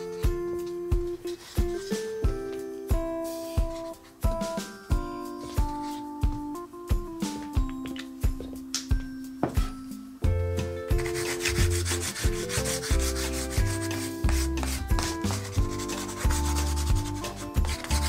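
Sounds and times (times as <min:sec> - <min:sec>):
background music: 0:00.0 - 0:18.0
crayon scratching on cardboard: 0:11.0 - 0:18.0.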